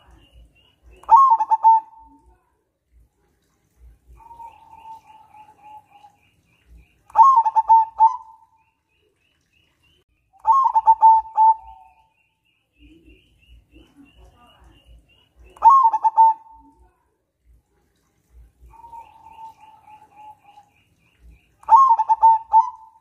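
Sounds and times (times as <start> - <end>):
dove cooing: 1.1 - 2.3, 4.1 - 6.2, 7.1 - 8.5, 10.4 - 12.0, 15.6 - 16.8, 18.6 - 20.7, 21.6 - 23.0.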